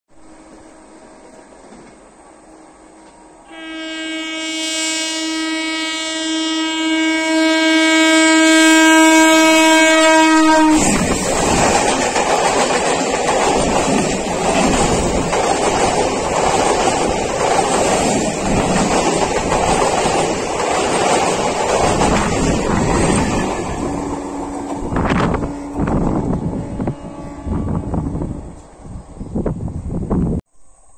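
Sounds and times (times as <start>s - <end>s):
train wheels on rails: 0.2s - 3.4s, 8.7s - 27.4s
faint train horn: 2.5s - 11.0s, 23.0s - 29.0s
train horn blast: 3.4s - 11.1s, 22.8s - 28.8s.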